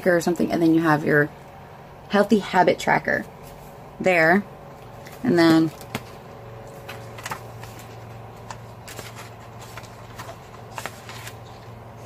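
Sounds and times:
low steady hum: 0:00.0 - 0:12.0
paper pages rustling: 0:05.0 - 0:12.0.

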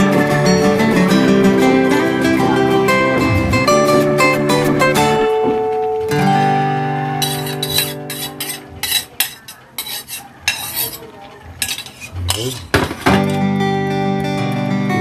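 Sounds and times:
spoon scraping a bowl: 0:07.2 - 0:12.7.

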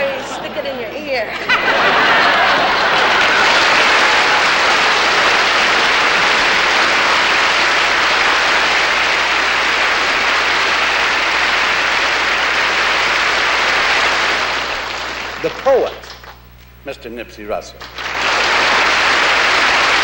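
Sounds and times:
audience applauding: 0:01.4 - 0:16.4, 0:17.8 - 0:20.0.

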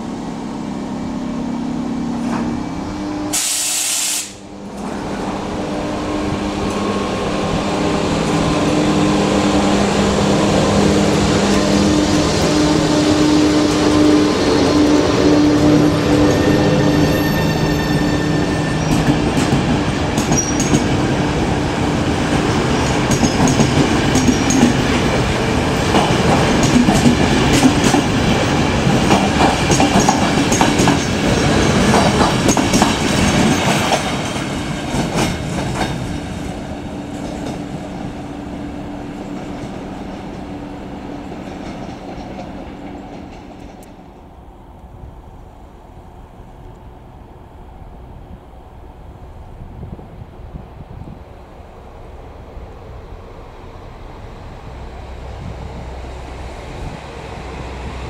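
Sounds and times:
high wheel squeals: 0:16.2 - 0:19.0
train wheels clicking over rail joints: 0:18.8 - 0:21.0, 0:22.3 - 0:38.0, 0:41.2 - 0:44.3.

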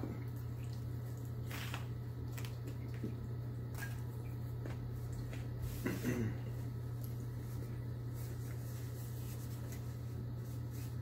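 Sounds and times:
person chewing crunchy food: 0:00.3 - 0:07.8.

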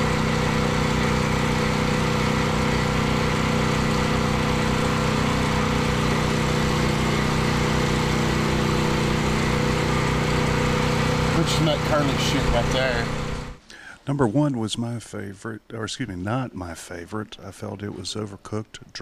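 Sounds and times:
small engine running: 0:00.0 - 0:13.6.

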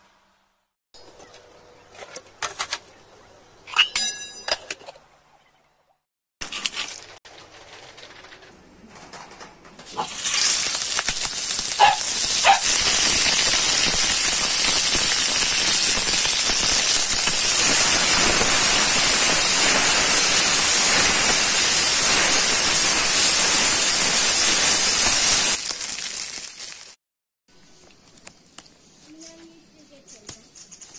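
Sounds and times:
kernels sizzling in hot oil: 0:09.9 - 0:27.0.

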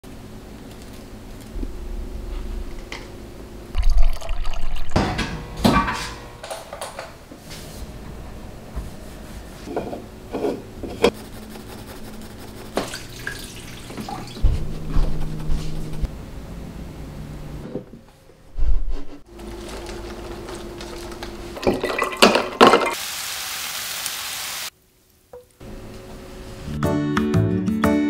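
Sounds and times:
low steady hum: 0:00.0 - 0:21.9
water splashing and trickling: 0:03.8 - 0:05.0, 0:12.9 - 0:14.4.

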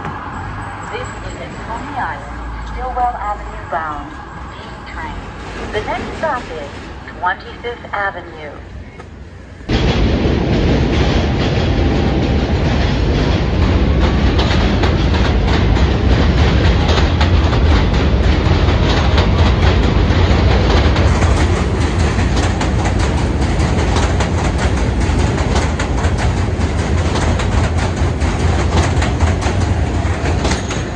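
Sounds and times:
subway train rumbling past: 0:00.0 - 0:30.9
wheels clattering over rail joints: 0:10.2 - 0:30.9.

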